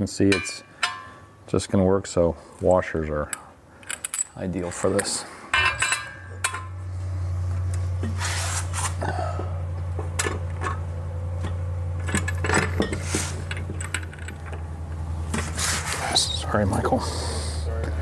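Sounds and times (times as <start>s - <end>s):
steady low hum: 0.0s - 18.0s
metal clinks and knocks: 0.3s - 1.2s, 5.0s - 6.8s, 11.4s - 14.7s.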